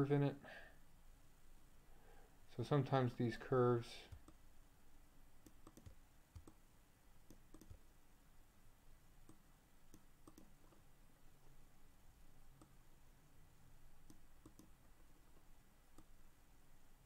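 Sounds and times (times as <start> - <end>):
faint computer mouse clicks: 5.4 - 6.6, 7.3 - 7.8, 9.2 - 10.8, 14.0 - 14.8.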